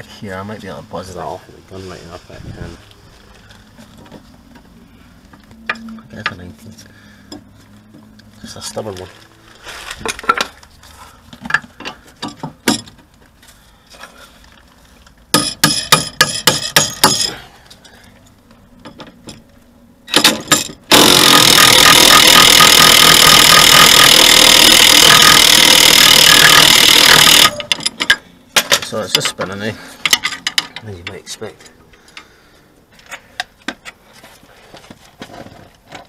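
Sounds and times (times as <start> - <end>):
impact wrench hammering: 15.3 - 17.3, 20.1 - 28.8.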